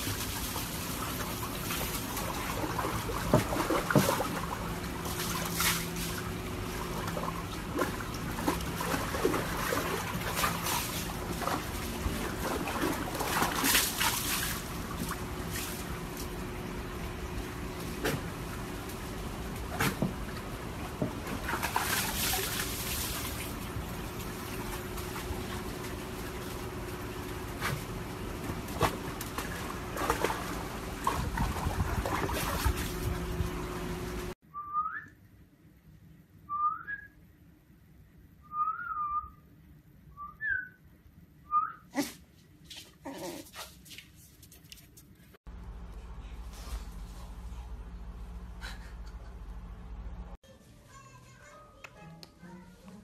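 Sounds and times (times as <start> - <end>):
water sloshing in plastic tub: 0.0 - 33.6.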